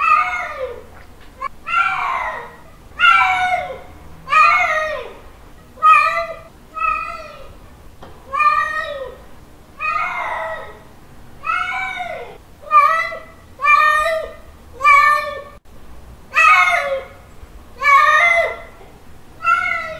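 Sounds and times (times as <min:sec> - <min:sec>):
cat meowing: 0:05.8 - 0:07.5, 0:19.4 - 0:19.9.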